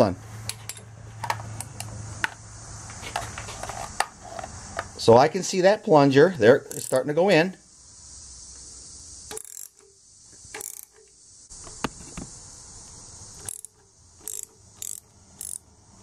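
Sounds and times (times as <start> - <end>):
ratchet wrench clicking: 6.6 - 7.1, 9.3 - 11.9, 13.3 - 15.7.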